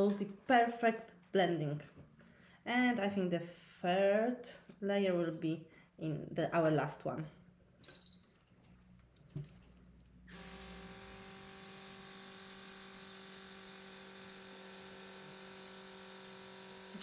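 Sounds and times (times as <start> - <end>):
airbrush compressor hum and hiss: 10.3 - 17.0.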